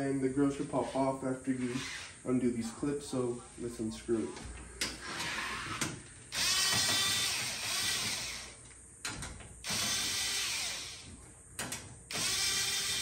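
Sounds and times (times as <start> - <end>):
cordless power tool running: 6.3 - 8.6, 9.6 - 11.1, 12.1 - 13.0.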